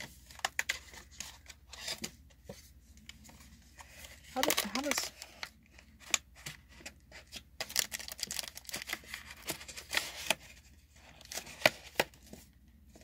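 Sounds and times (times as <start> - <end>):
foil packs crinkling: 4.2 - 5.4, 7.6 - 10.4.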